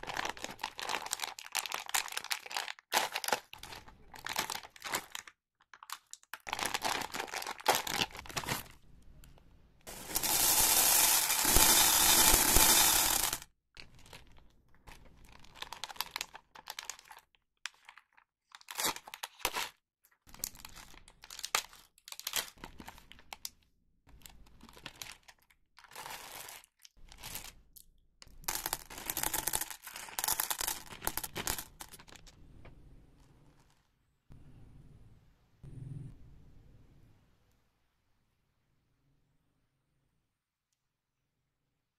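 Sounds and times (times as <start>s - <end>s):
plastic wrappers crinkling and tearing: 0.0s - 8.8s, 9.9s - 23.6s, 24.2s - 27.8s, 28.5s - 32.4s.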